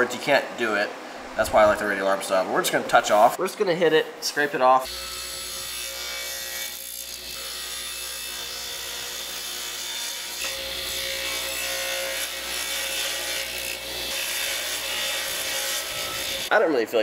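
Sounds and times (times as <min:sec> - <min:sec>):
table saw cutting wood: 0:04.8 - 0:16.5.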